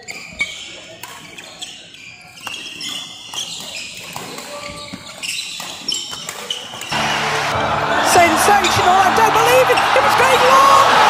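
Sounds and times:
shoe squeaks on court: 0.0s - 6.9s.

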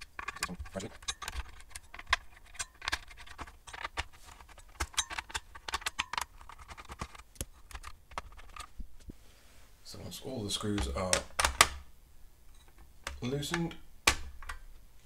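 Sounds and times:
handling of circuit board: 0.0s - 9.1s.

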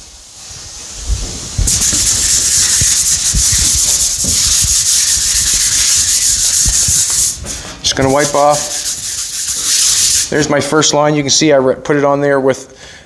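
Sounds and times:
rag rubbing on aluminum sheet: 1.6s - 10.4s.

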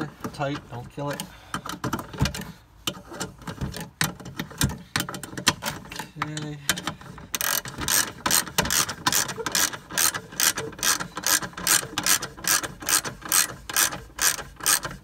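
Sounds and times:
socket ratchet wrench clicking: 7.3s - 15.0s.

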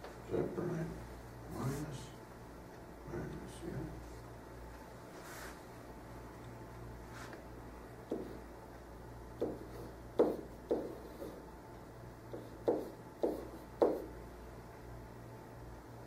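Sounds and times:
steady low hum: 0.0s - 16.0s
pen writing on whiteboard: 8.1s - 8.4s, 9.4s - 11.4s, 12.3s - 14.1s.

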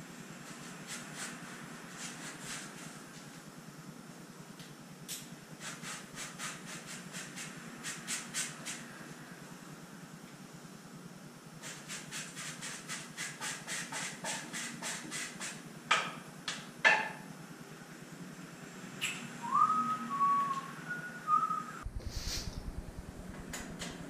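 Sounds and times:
person whistling: 19.4s - 21.8s.

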